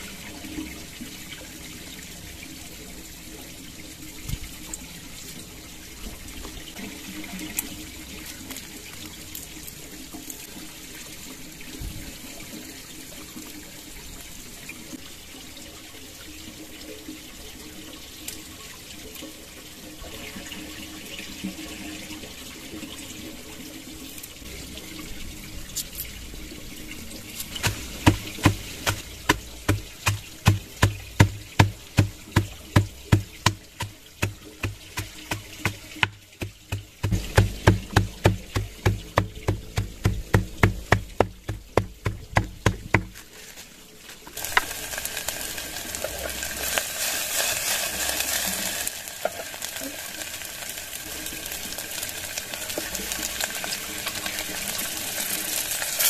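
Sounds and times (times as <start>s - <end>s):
stream water flowing: 0.0s - 55.6s
hatchet chopping on board: 27.6s - 43.2s.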